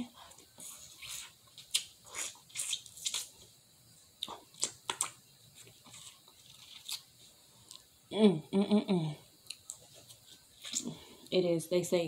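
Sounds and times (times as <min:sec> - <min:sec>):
sucking at fingers: 0:00.5 - 0:03.4.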